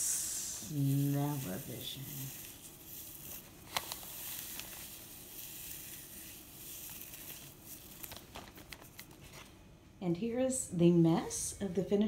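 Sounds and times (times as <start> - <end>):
dried leaves rustling in plastic bag: 0.6 - 9.4.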